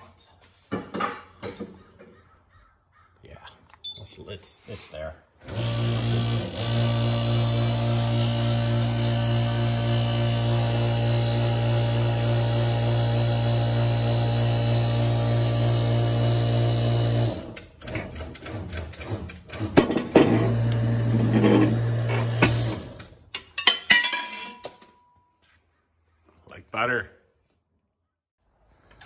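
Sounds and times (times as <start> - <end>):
hydraulic pump humming: 5.4 - 23.2.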